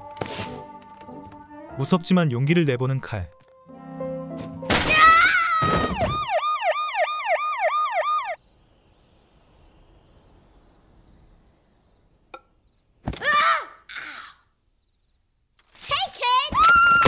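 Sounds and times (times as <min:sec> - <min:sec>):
emergency siren yelping: 0:05.0 - 0:08.4.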